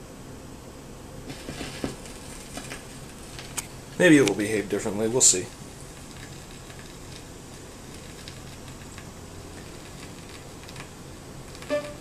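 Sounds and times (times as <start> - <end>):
low mains hum: 0.0 - 12.0
record surface hiss: 0.0 - 12.0
faint record clicks: 2.5 - 4.4.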